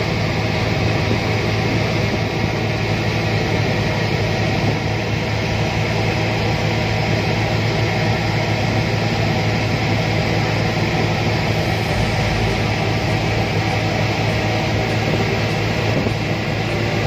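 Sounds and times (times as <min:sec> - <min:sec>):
boat diesel engine running: 0:00.0 - 0:17.0
wind noise: 0:11.0 - 0:17.0.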